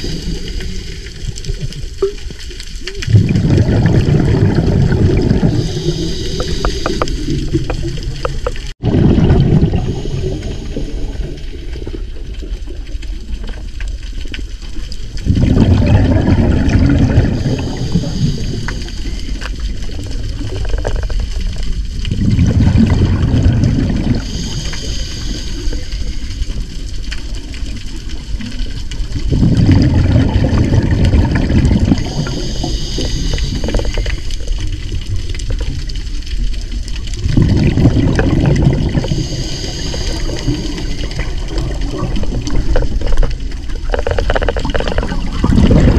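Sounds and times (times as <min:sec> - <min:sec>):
exhaled bubbles rushing: 0:00.0 - 0:13.8, 0:14.4 - 0:45.9
regulator inhale hiss: 0:05.4 - 0:07.6, 0:09.8 - 0:11.4, 0:17.5 - 0:19.6, 0:24.2 - 0:26.6, 0:32.0 - 0:34.6, 0:38.9 - 0:41.3.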